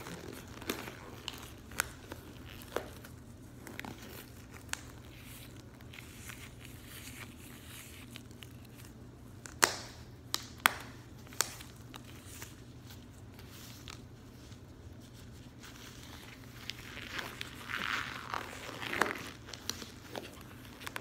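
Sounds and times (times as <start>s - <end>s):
latex gloves crinkling: 0.0s - 21.0s
latex glove snaps: 9.4s - 11.7s.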